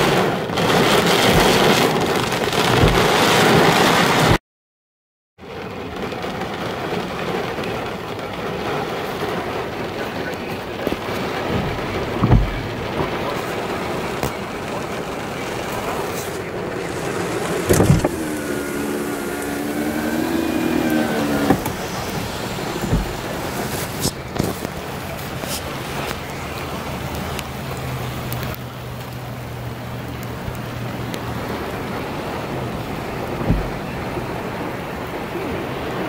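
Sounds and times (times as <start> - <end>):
rain washing over a vehicle: 0.0 - 4.4, 5.4 - 36.0
dull thumps against car body: 2.8 - 3.1, 11.5 - 12.7, 17.7 - 23.4, 33.4 - 33.9.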